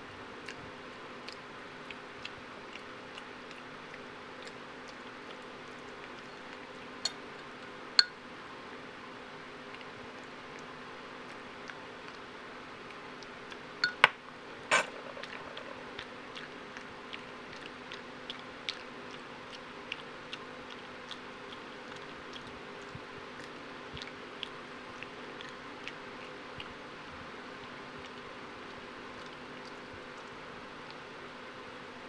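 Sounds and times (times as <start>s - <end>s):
metal spoon knocking on mug: 13.8s - 14.1s
monkey smacking lips chewing: 14.9s - 27.0s.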